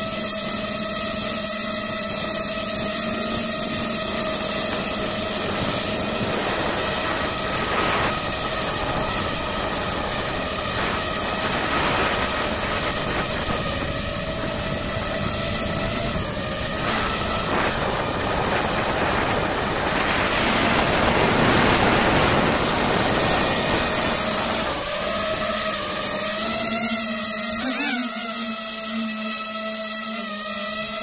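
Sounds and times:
drone propellers whining: 0.0s - 31.0s
rush of air noise: 2.6s - 25.3s.

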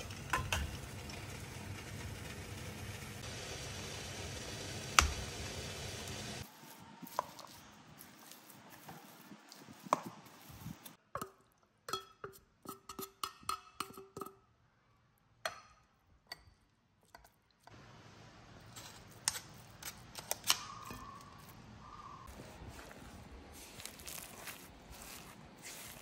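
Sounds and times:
spoon tapping and scraping: 0.3s - 0.8s, 8.2s - 14.4s, 15.4s - 17.7s, 18.6s - 21.6s.

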